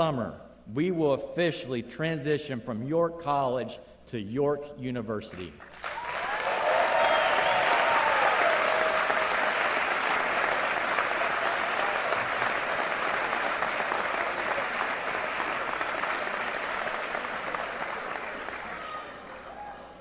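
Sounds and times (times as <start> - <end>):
audience applauding: 5.6 - 20.0
cheering shouts: 5.9 - 12.4, 18.2 - 20.0.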